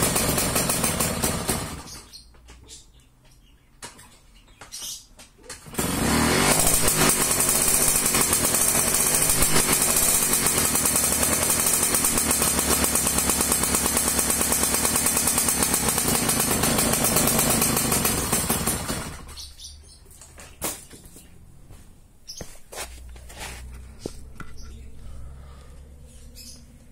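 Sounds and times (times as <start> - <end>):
moped engine running: 0.0 - 2.2, 5.6 - 19.5.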